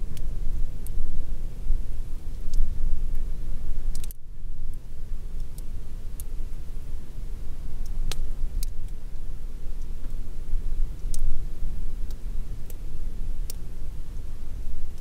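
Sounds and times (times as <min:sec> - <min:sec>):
raindrop ticks: 0:02.3 - 0:03.3, 0:03.9 - 0:04.8, 0:05.4 - 0:06.3, 0:07.8 - 0:09.0, 0:11.0 - 0:11.4, 0:12.0 - 0:12.8, 0:13.4 - 0:13.6.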